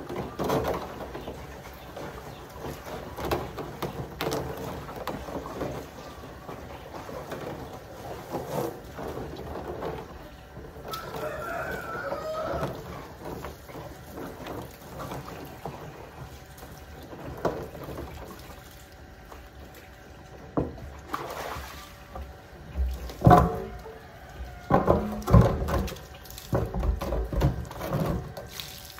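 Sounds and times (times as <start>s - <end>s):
hose water splashing on plastic drum: 0.0s - 28.9s
hollow knocks of plastic drum: 24.6s - 28.4s.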